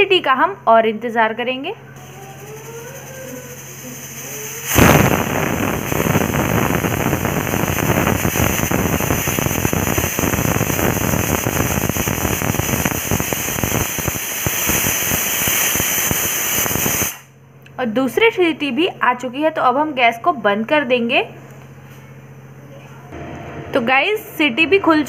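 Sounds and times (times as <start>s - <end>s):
pressure cooker whistling: 2.0s - 17.3s
steam hissing with rapid rattling: 2.0s - 17.3s.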